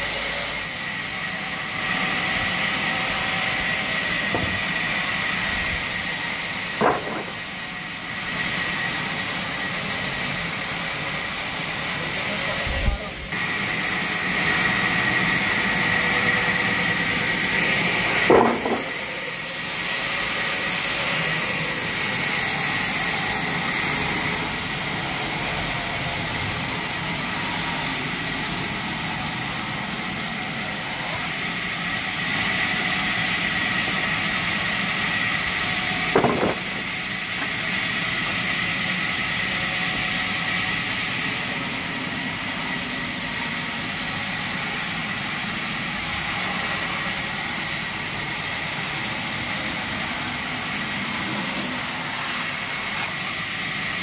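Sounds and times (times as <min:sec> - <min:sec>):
short knock: 0:04.3 - 0:04.6, 0:06.8 - 0:07.4, 0:18.3 - 0:18.9, 0:36.2 - 0:36.7.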